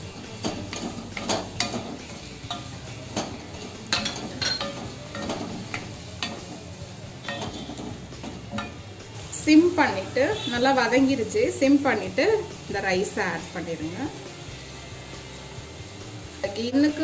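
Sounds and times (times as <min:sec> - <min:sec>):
frying sizzle: 0:00.0 - 0:17.0
spatula scraping metal pan: 0:00.1 - 0:08.8.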